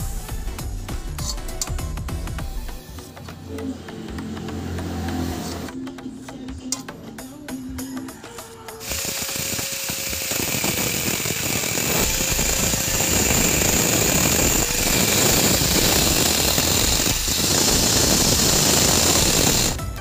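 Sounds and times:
angle grinder cutting steel: 0:03.6 - 0:05.8, 0:08.6 - 0:19.8.

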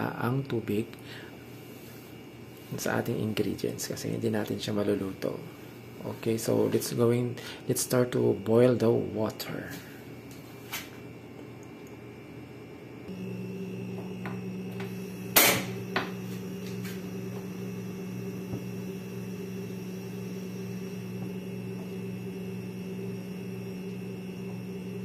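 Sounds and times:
appliance hum: 0:00.0 - 0:25.0.

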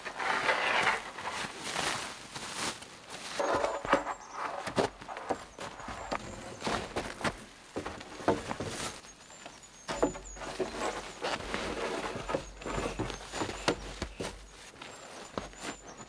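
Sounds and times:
wooden poles knocking: 0:03.4 - 0:08.8, 0:09.9 - 0:14.6.

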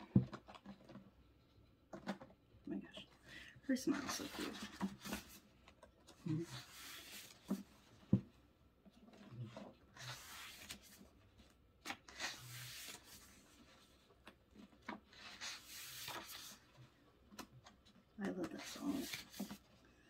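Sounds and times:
paper pages rustling: 0:03.9 - 0:07.9, 0:09.0 - 0:19.8.

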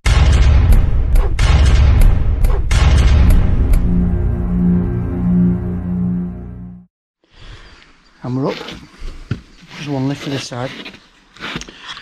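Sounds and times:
booming cinematic impacts: 0:00.0 - 0:06.9
dramatic music: 0:00.0 - 0:06.9.

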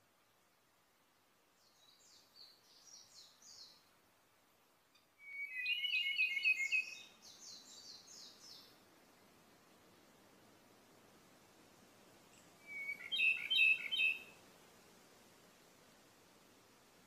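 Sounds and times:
bird singing high quick notes: 0:05.2 - 0:07.1.

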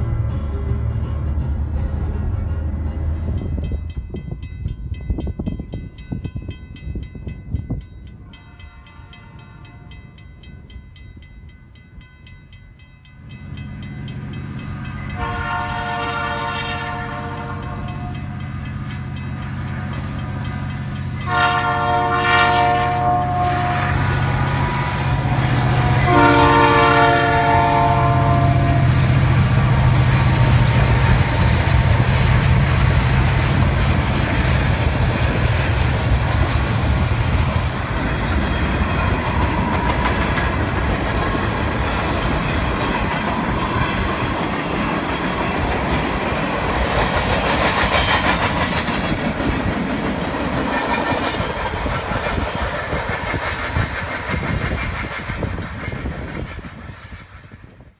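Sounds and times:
diesel engine droning: 0:00.0 - 0:03.7
train wheels on rails: 0:00.0 - 0:57.9
locomotive horn: 0:08.2 - 0:10.0, 0:15.1 - 0:18.4, 0:21.2 - 0:29.1.

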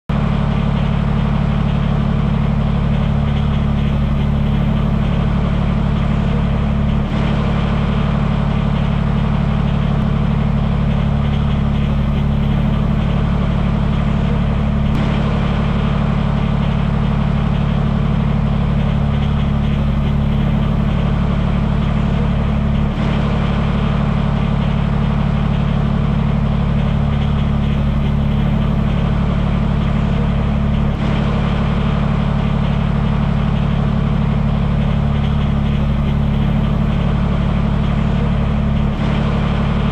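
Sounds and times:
engine idling with low hum: 0:00.0 - 0:39.9.

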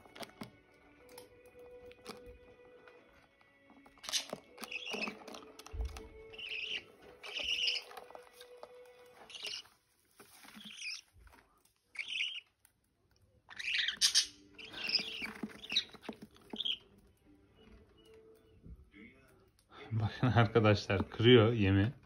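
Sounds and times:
budgerigars chirping: 0:04.0 - 0:08.5, 0:09.2 - 0:09.7, 0:10.4 - 0:11.0, 0:11.9 - 0:12.5, 0:13.5 - 0:16.9.

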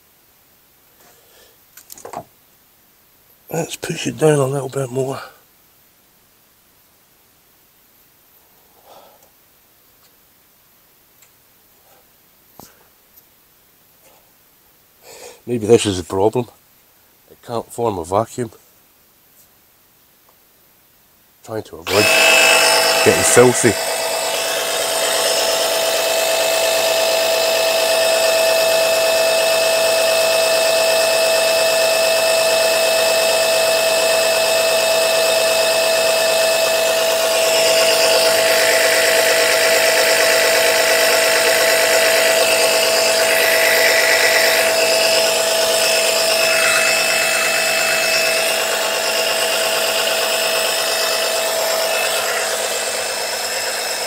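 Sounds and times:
pump motor whine: 0:21.9 - 0:54.0.

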